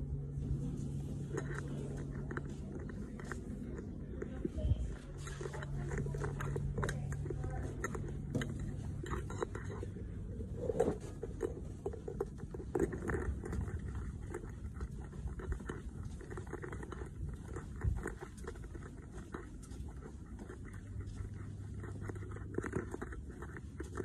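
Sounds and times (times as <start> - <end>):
low steady hum: 0.0 - 24.0.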